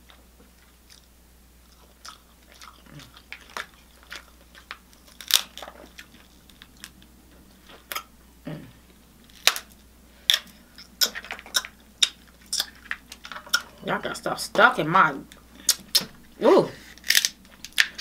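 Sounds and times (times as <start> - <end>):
person chewing and biting: 0.0 - 8.1, 9.3 - 13.8, 16.8 - 18.0.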